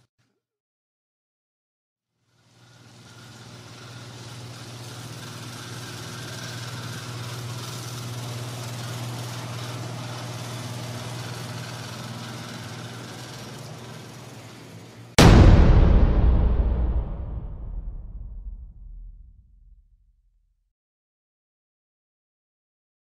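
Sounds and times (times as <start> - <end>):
welding machine humming and hissing: 2.2 - 15.1.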